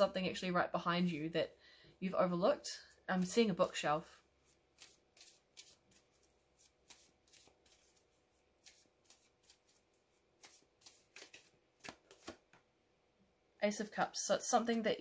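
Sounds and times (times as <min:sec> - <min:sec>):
cards being shuffled: 0:04.4 - 0:12.6.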